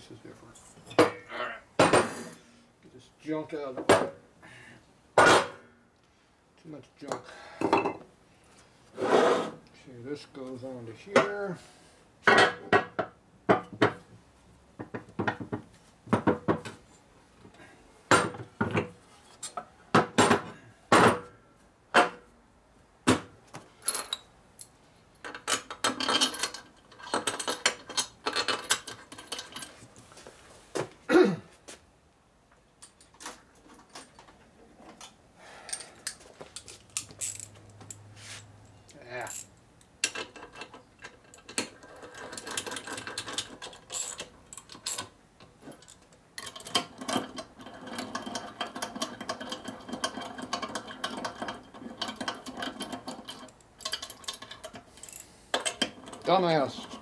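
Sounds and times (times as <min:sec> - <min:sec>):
metal parts rattling and scraping: 0:25.2 - 0:29.9, 0:32.8 - 0:38.5, 0:39.2 - 0:57.0
hand tool working a bolt: 0:45.7 - 0:57.0.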